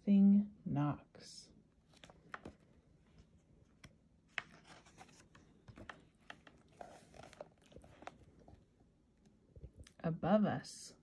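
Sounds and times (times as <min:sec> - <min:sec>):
book pages rustling: 0:01.8 - 0:09.8.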